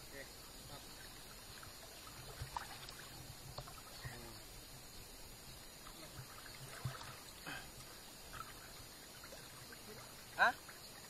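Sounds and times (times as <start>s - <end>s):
river water splashing: 0.0s - 11.0s.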